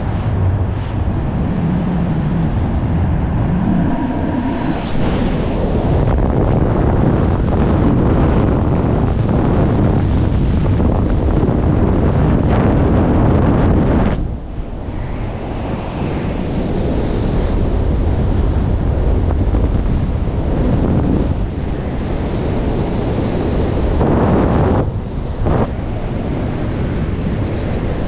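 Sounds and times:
wind buffeting microphone: 0.0 - 28.0.

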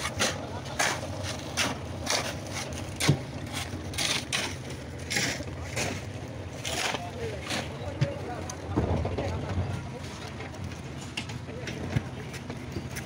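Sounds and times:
shovels scraping wet concrete: 0.0 - 8.5
low machine hum: 0.0 - 13.0.

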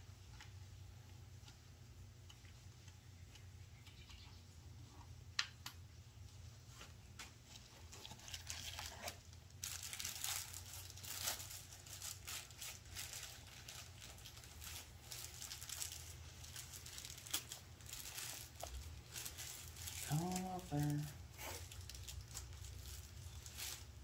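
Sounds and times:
packaging rustling and crinkling: 6.7 - 24.0.

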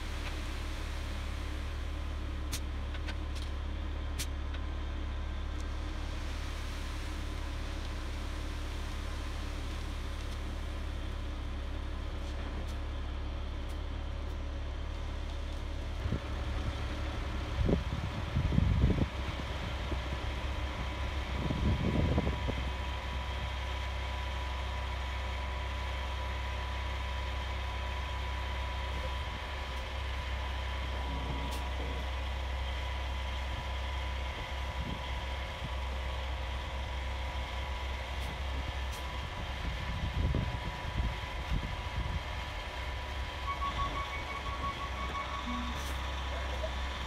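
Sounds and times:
diesel engine running: 0.0 - 47.0
low rumbles: 0.0 - 47.0
concrete pouring down chute: 5.8 - 11.2.

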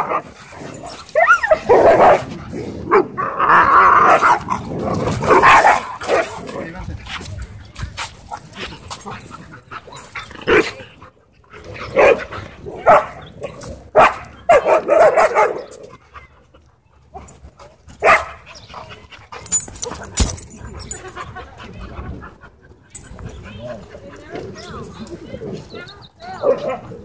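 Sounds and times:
dogs barking: 0.0 - 3.2, 5.3 - 6.4, 11.8 - 16.0, 18.0 - 18.6, 26.2 - 27.0.

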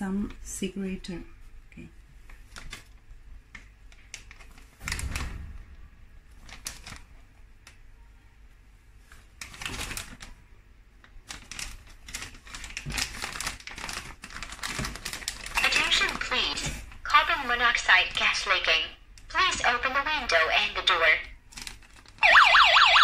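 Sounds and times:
plastic bag crinkling: 2.3 - 3.0, 3.9 - 5.2, 6.3 - 7.4, 9.0 - 17.4, 21.4 - 22.3.

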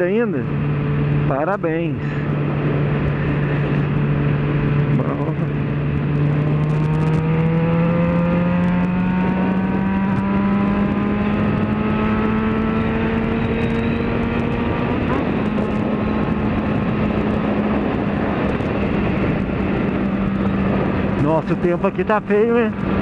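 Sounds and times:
steady rushing noise: 0.0 - 23.0
motorcycle engine revving up: 3.4 - 21.2.

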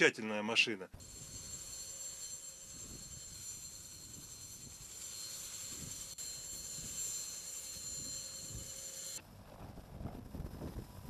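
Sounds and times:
helicopter rotor rushing: 1.0 - 9.2
helicopter turbine whine: 1.0 - 11.0.

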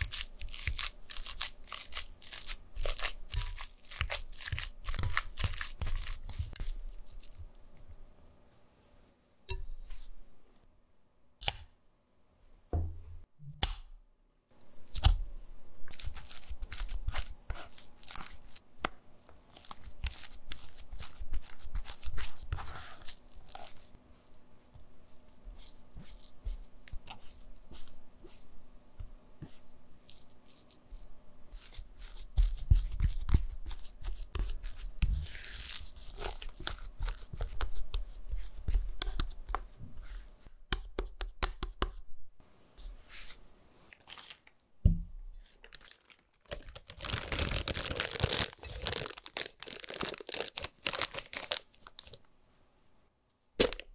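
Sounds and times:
potato scraped through mesh sieve: 29.4 - 37.7.

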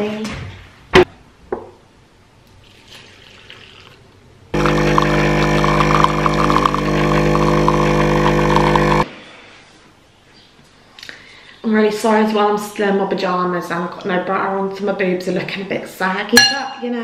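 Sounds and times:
milk being poured: 2.6 - 9.0
coffee machine pump buzzing: 4.6 - 9.0.

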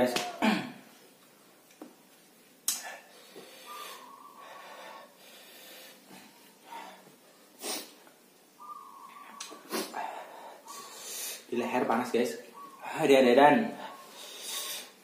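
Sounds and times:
sharp hissing breaths: 2.7 - 8.1, 9.2 - 11.5, 13.8 - 15.0
man breathing hard: 2.9 - 8.0, 9.6 - 11.5, 13.8 - 15.0.

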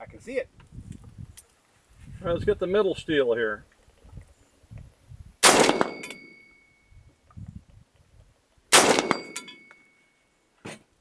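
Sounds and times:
rifle shots: 5.4 - 6.3, 8.7 - 9.6
distant steel target ringing: 5.4 - 6.9, 8.8 - 10.2.

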